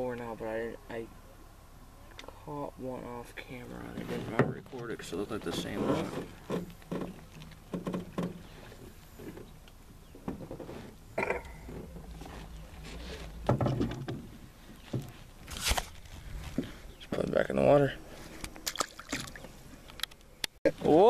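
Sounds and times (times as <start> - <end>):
heavy thump: 10.3 - 14.4.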